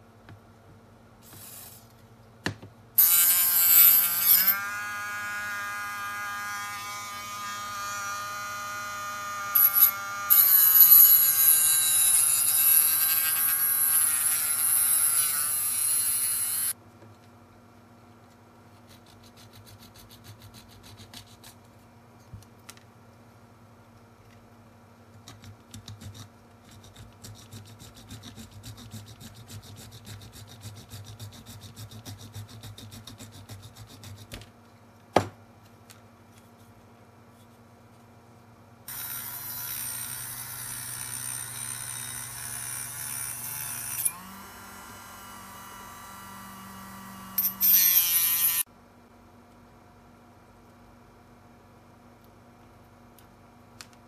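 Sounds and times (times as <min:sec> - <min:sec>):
rotary tool drilling plastic: 0:47.4 - 0:48.6.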